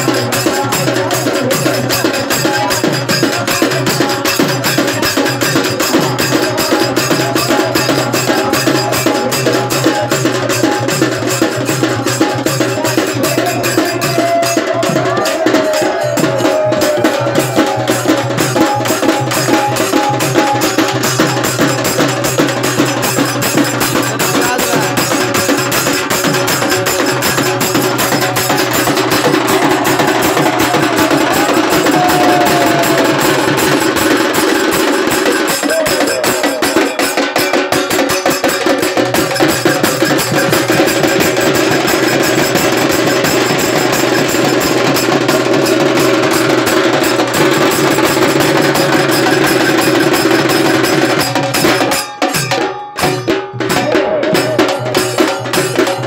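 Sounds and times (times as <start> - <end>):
barrel drum beat: 0.0 - 56.0
snare drum beat: 13.7 - 56.0.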